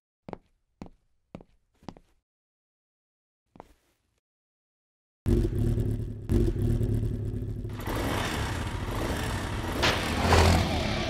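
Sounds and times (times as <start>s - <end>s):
motorcycle engine starting and revving: 5.3s - 11.0s.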